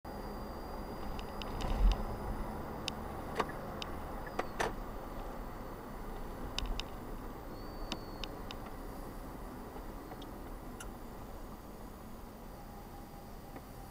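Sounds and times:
road and engine noise inside car: 0:00.1 - 0:13.9
light clicks and ticks: 0:02.8 - 0:04.7, 0:06.5 - 0:07.0.

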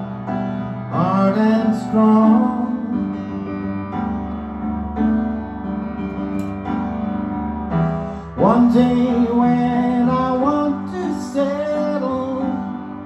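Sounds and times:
piano playing sustained chords: 0:00.0 - 0:13.0
man singing: 0:00.9 - 0:03.2, 0:08.4 - 0:13.0.

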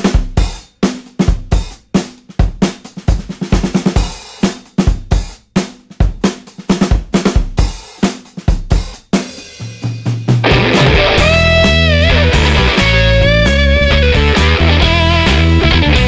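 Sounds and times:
drum kit playing rock beat: 0:00.0 - 0:16.0
low held bass note: 0:10.4 - 0:15.8.

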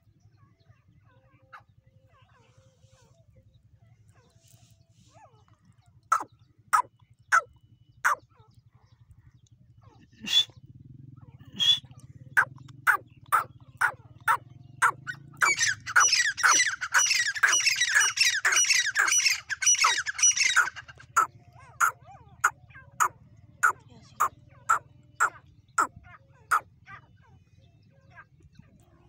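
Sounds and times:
francolin calling harshly: 0:06.1 - 0:08.2, 0:12.4 - 0:25.9
second bird calling: 0:06.1 - 0:08.2, 0:10.2 - 0:10.6, 0:11.5 - 0:25.9.

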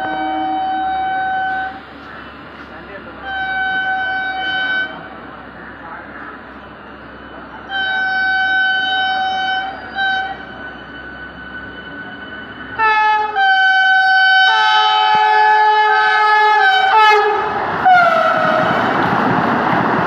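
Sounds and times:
train horn blasts: 0:00.0 - 0:01.8, 0:03.2 - 0:05.1, 0:07.7 - 0:11.2, 0:12.8 - 0:18.9
rushing noise of train: 0:00.0 - 0:20.0.

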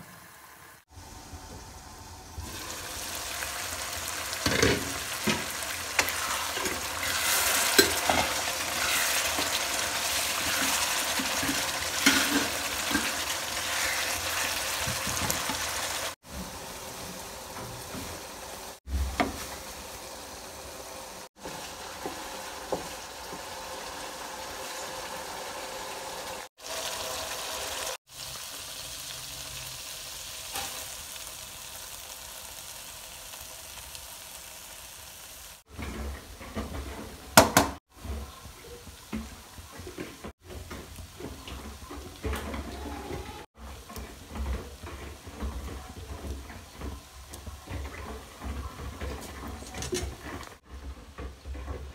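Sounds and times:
gravy sizzling and bubbling: 0:00.0 - 0:51.9.

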